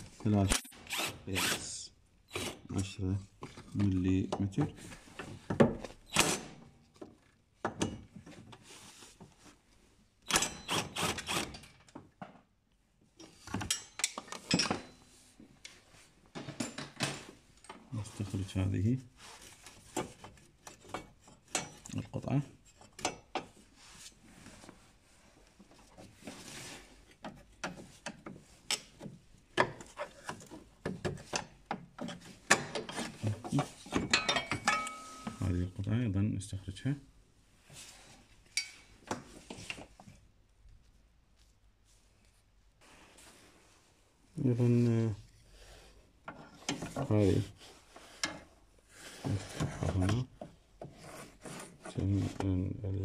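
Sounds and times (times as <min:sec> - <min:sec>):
metal tools scraping on bracket: 0:32.0 - 0:35.4.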